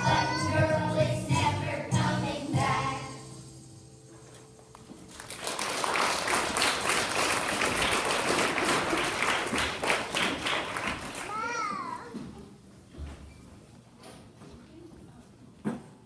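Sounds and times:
children's choir singing: 0:00.0 - 0:03.4
backing music: 0:00.0 - 0:06.4
audience applause: 0:05.1 - 0:11.4.

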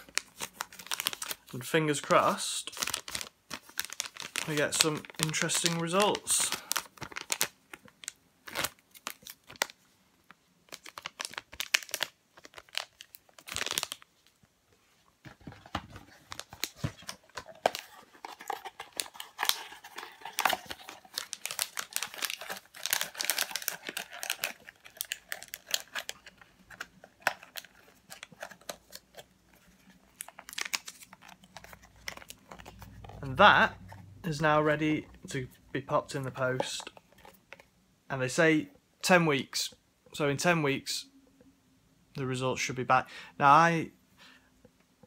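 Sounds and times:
plastic bag crinkling: 0:00.0 - 0:09.8, 0:10.7 - 0:14.4, 0:15.2 - 0:37.7.

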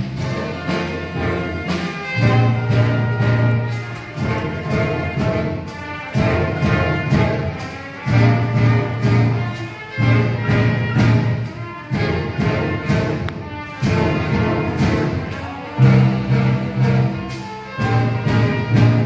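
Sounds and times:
concert band playing: 0:00.0 - 0:19.0
loud band chords: 0:00.0 - 0:19.0.

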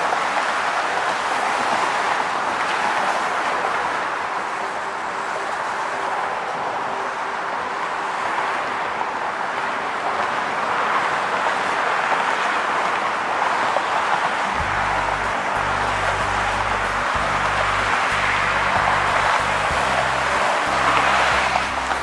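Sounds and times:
passing car traffic: 0:00.0 - 0:22.0.

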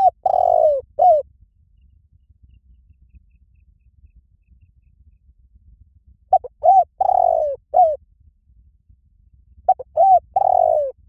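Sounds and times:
dove cooing: 0:00.0 - 0:01.2, 0:06.3 - 0:08.0, 0:09.7 - 0:11.0.

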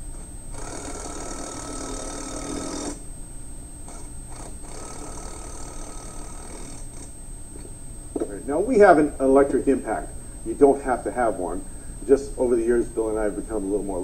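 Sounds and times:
electric impact wrench hammering: 0:00.0 - 0:03.1, 0:03.8 - 0:07.2.

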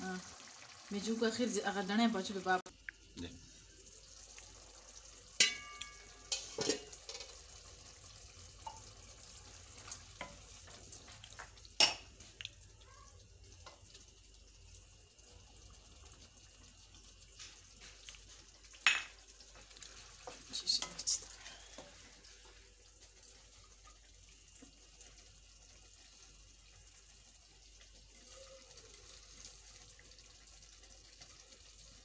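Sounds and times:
faint simmering sizzle: 0:00.0 - 0:32.0
spoon knocking on pan: 0:05.4 - 0:07.3.

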